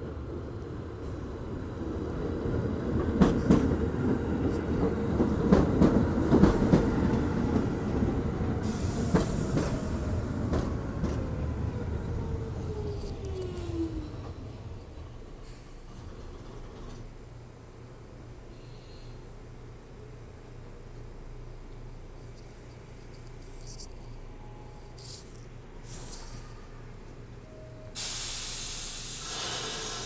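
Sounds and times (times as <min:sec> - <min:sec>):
short hiss: 0:28.0 - 0:30.0.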